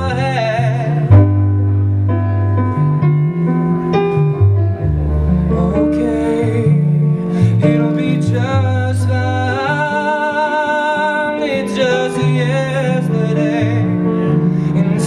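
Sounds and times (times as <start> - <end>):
man singing: 0.0 - 1.2, 5.5 - 15.0
electric bass guitar: 0.0 - 9.9
electronic keyboard: 0.0 - 15.0.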